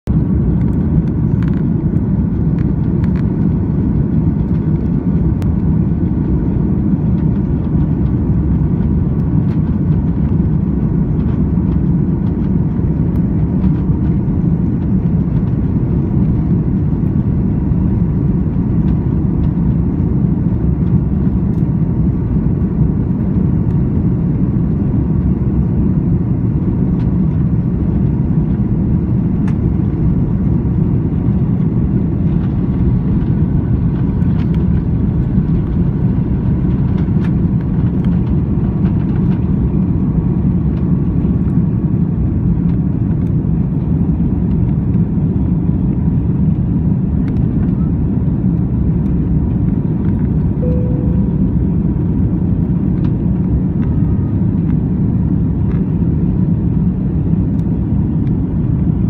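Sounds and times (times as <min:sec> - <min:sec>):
aircraft cabin rumble taxiing: 0:00.0 - 0:59.0.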